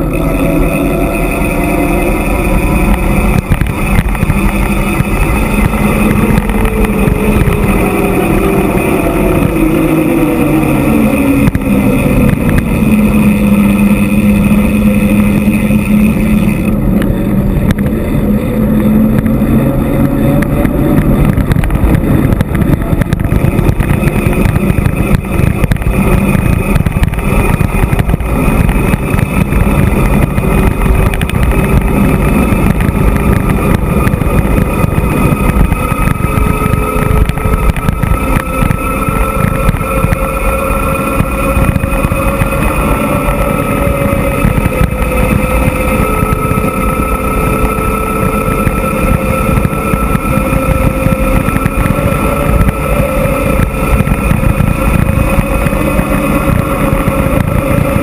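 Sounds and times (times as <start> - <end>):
low drone: 0.0 - 58.0
wind rushing over microphone: 0.0 - 58.0.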